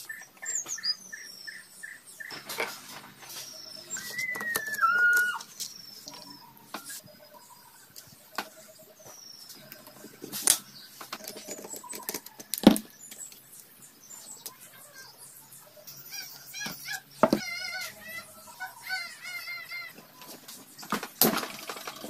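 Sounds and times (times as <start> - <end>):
birds chirping: 0.0 - 22.0
short falling whistles: 3.4 - 5.5
loud bending whistle: 3.9 - 5.5.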